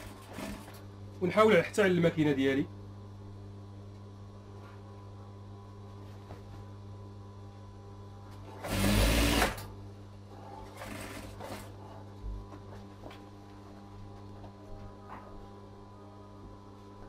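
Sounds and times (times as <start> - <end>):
steady low hum: 0.0 - 17.0
sewing machine stitching: 8.6 - 9.7, 10.7 - 11.7.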